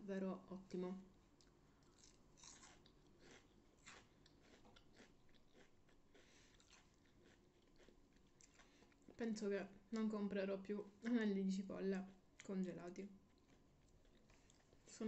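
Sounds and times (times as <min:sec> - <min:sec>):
crunchy chewing: 0:01.3 - 0:09.2, 0:13.2 - 0:14.9.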